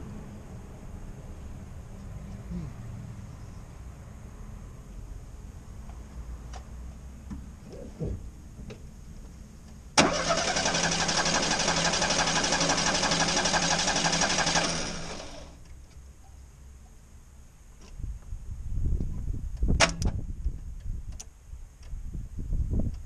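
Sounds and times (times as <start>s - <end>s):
starter motor cranking engine: 10.0s - 15.6s.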